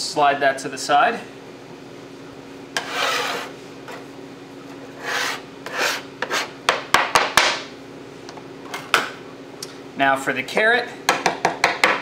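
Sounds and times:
knife scraping on cutting board: 0:02.8 - 0:04.1, 0:04.7 - 0:06.6.

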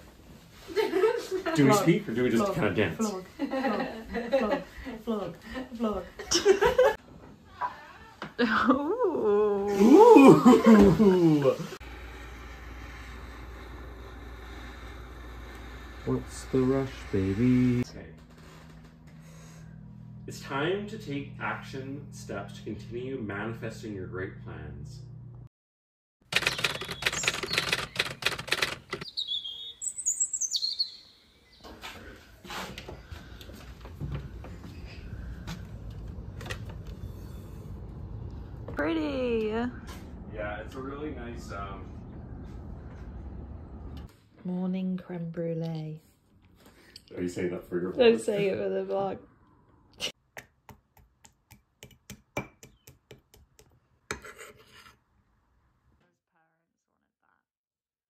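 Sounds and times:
high gliding chirping calls: 0:26.4 - 0:28.2, 0:29.0 - 0:31.7.

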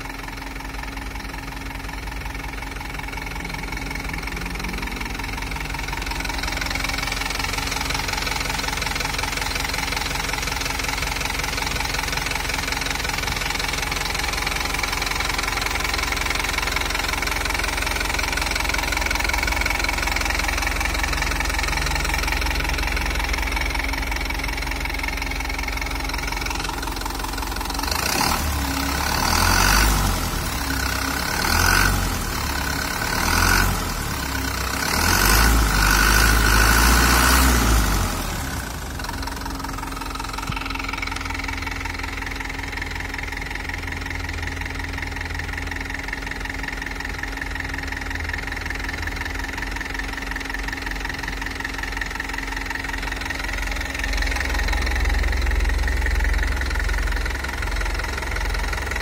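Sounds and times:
diesel truck engine idling: 0:00.0 - 0:59.0.

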